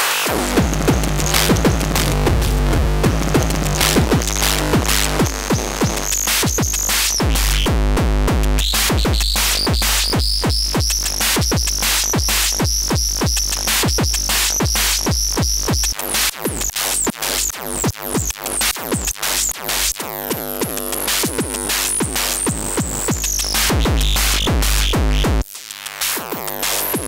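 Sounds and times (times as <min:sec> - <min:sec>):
drum machine hits: 0:00.3 - 0:07.4
low hum: 0:00.4 - 0:06.1.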